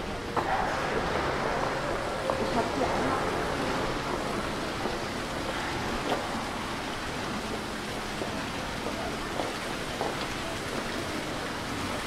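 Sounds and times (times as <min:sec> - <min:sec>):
street noise rushing: 0:00.0 - 0:08.2.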